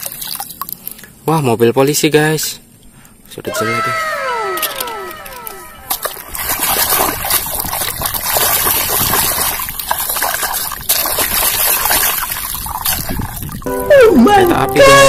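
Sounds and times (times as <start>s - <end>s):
falling tones: 3.5s - 6.4s, 13.7s - 15.0s
toy splashing in water: 4.8s - 13.6s.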